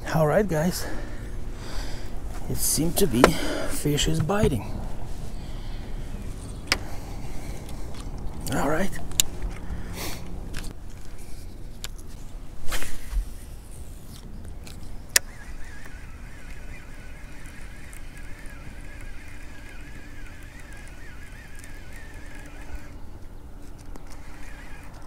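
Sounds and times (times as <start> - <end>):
fishing reel whine: 13.6 - 25.0.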